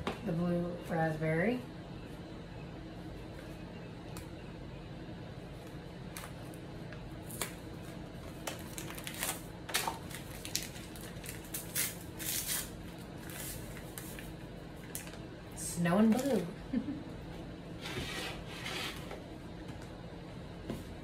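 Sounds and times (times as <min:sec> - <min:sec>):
paper packet crinkling and tearing: 0:08.2 - 0:15.2.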